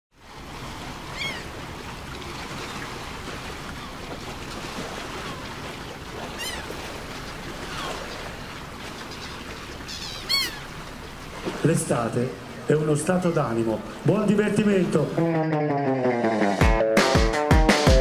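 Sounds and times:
surf-like noise: 0:00.2 - 0:16.7
bird's short arching cry: 0:09.9 - 0:10.7.

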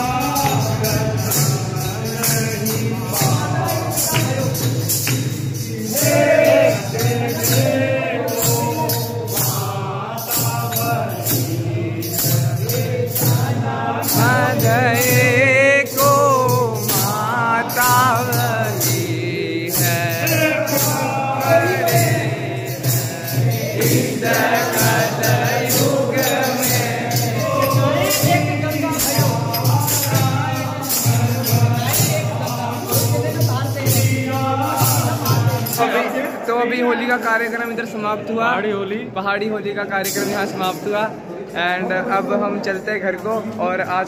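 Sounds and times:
men singing together: 0:00.0 - 0:37.4
jingling metal percussion: 0:00.0 - 0:38.3, 0:39.7 - 0:44.0.

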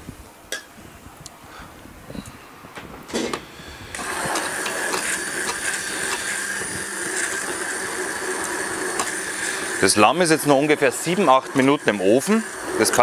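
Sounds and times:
immersion blender whining: 0:03.5 - 0:13.0.

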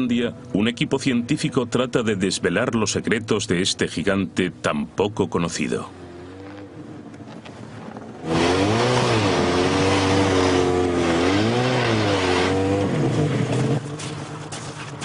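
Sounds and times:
snowmobile engine revving: 0:05.8 - 0:15.0.

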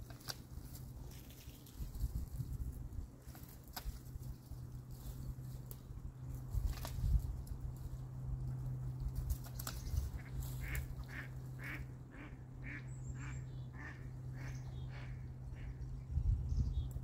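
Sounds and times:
ducks quacking: 0:10.1 - 0:15.8.

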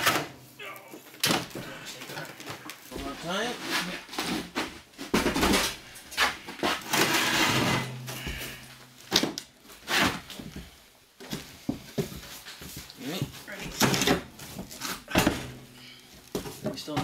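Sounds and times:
stove scraping across wooden floor: 0:02.9 - 0:04.6, 0:05.7 - 0:08.6.

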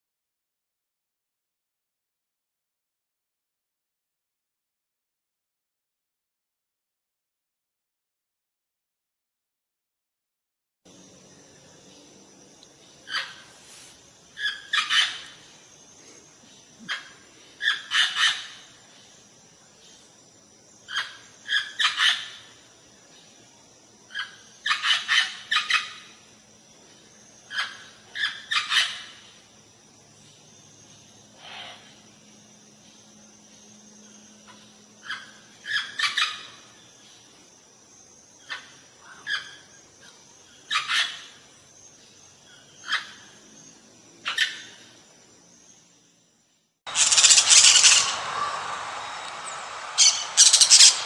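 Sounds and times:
parrot squawking: 0:46.9 - 0:51.0.

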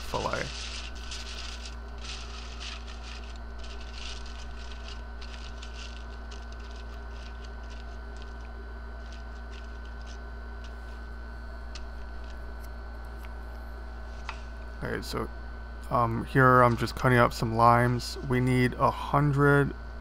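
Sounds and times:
aluminium foil crinkling: 0:00.0 - 0:13.4
steady low hum: 0:00.0 - 0:20.0.

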